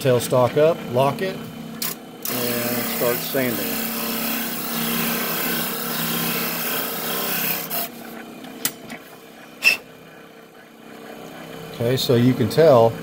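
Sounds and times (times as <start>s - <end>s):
motor hum: 0.0s - 13.0s
sanding disc rasping: 2.3s - 8.2s.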